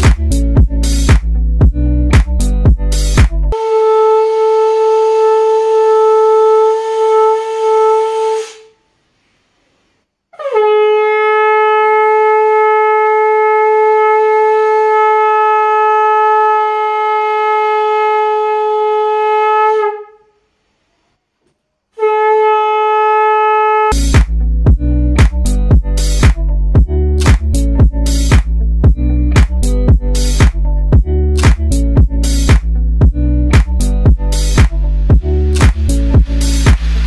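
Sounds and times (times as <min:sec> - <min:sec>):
conch shell blasts: 0:03.6 - 0:08.7, 0:10.4 - 0:20.2, 0:22.0 - 0:24.0.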